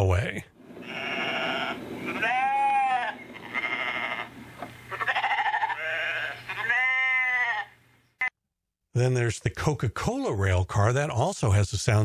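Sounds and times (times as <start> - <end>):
sheep and goat bleats from speaker: 0.8 - 4.3, 4.9 - 7.7.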